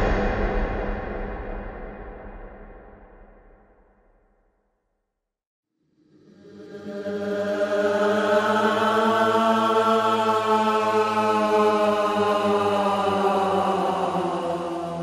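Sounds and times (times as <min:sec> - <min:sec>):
low droning chant-like voice: 0:06.0 - 0:15.0.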